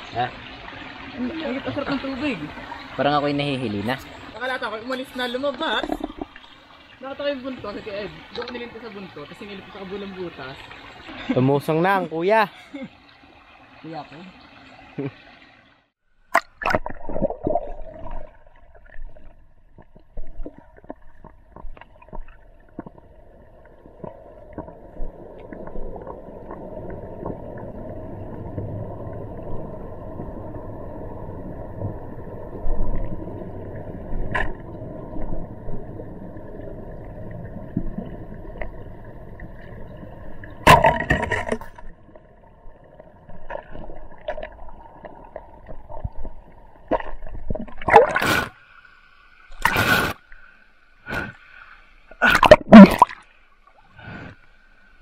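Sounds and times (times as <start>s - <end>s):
muffled underwater rush: 16.6s - 48.7s.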